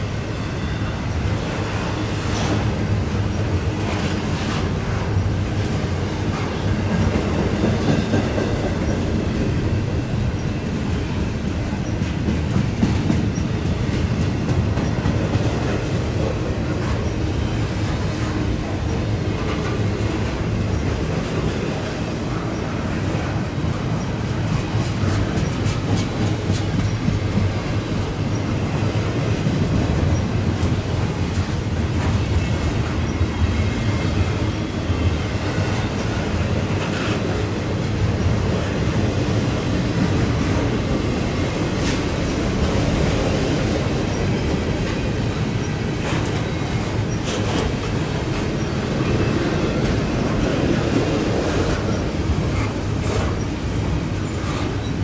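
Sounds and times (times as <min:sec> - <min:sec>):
train wheels rumbling on rail: 0:00.0 - 0:55.0.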